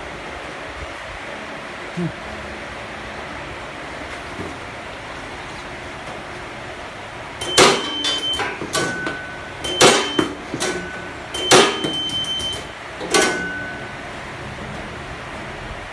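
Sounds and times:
items clattering down metal chute: 0:07.4 - 0:13.8
short electronic beeps: 0:07.4 - 0:14.0.

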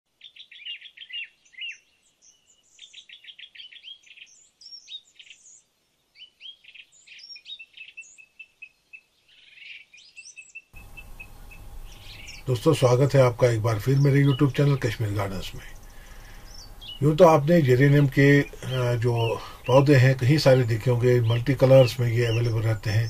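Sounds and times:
birds chirping and singing: 0:00.2 - 0:23.0
steady background hiss: 0:10.8 - 0:23.0.

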